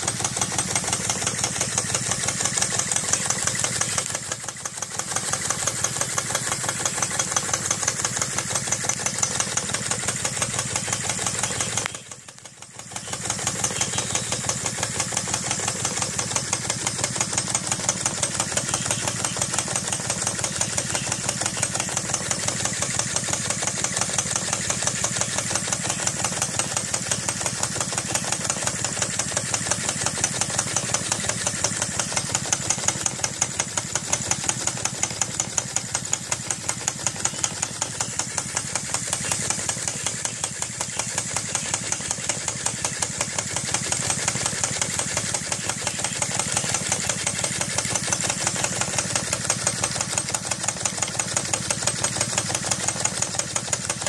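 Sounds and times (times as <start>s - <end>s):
model engine ticking and hissing: 0.0s - 54.0s.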